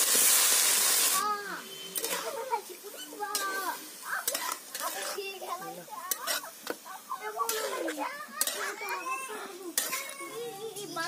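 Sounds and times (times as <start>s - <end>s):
metal spatula scraping metal pot: 1.6s - 5.5s, 6.1s - 10.4s.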